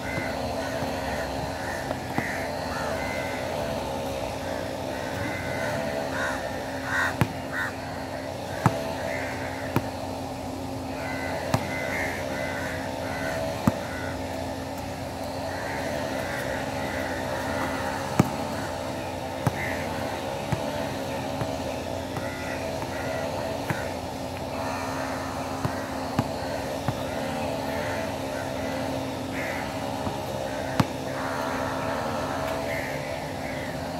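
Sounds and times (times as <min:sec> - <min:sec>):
steady background hum: 0:00.0 - 0:33.9
basketball bouncing on court: 0:00.1 - 0:04.0, 0:07.0 - 0:10.2, 0:10.9 - 0:11.9, 0:13.3 - 0:14.0, 0:15.8 - 0:24.7, 0:25.4 - 0:29.0, 0:29.7 - 0:32.6.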